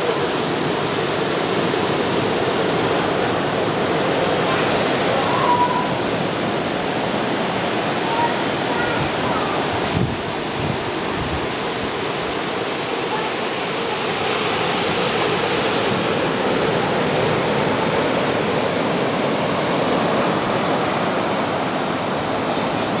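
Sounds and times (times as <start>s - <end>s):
ocean surf breaking on beach: 0.0s - 23.0s.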